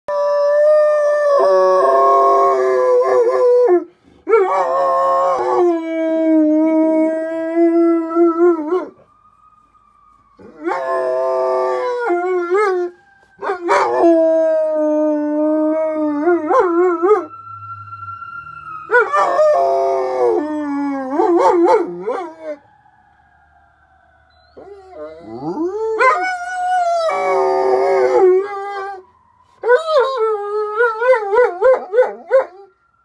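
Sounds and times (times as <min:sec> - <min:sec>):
dog howling: 0:00.1 - 0:09.0, 0:10.4 - 0:17.3, 0:24.5 - 0:32.7.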